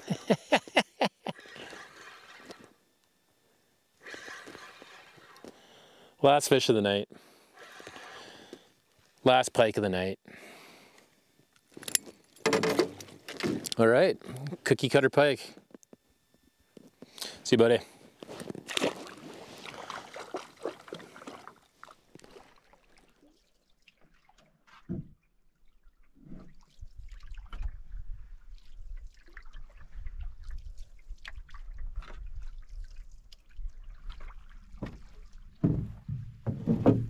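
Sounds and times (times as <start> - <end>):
water lapping against canoe: 1.2 - 2.7, 4.0 - 6.0, 7.2 - 8.7, 18.2 - 37.0
wind rumble on microphone: 26.8 - 32.9.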